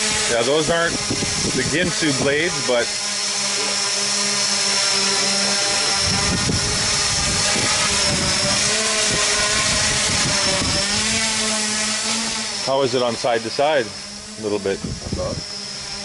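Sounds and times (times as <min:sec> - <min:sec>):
quadcopter propellers whining: 0:00.0 - 0:16.0
gusty low rumble of air: 0:00.8 - 0:02.4, 0:06.0 - 0:11.2, 0:14.7 - 0:15.5.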